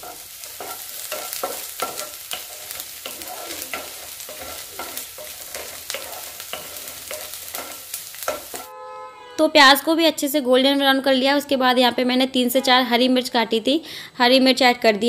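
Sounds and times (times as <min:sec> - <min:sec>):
onions sizzling in oil: 0:00.0 - 0:08.7
wooden spatula scraping pan: 0:00.0 - 0:08.7.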